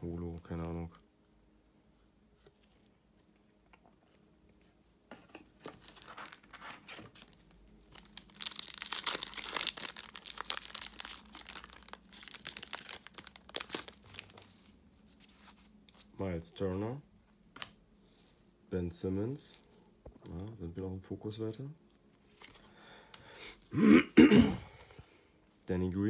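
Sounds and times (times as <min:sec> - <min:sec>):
plastic wrapper tearing and crinkling: 0:05.6 - 0:14.8.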